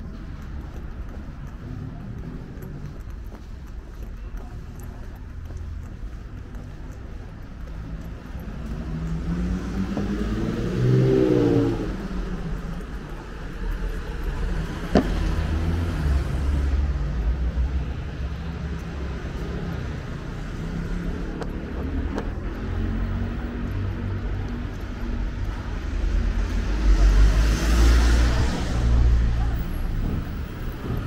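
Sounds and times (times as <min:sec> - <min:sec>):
cars passing: 0:00.0 - 0:31.0
low engine rumble: 0:00.0 - 0:31.0
car accelerating: 0:06.6 - 0:31.0.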